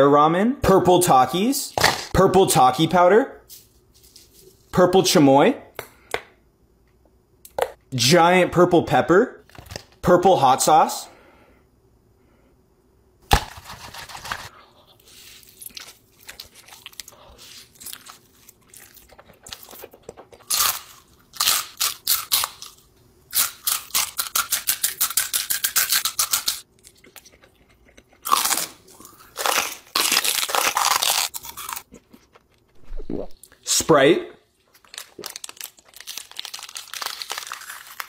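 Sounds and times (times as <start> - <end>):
chips crunching: 15.3 - 32.9, 34.7 - 38.0.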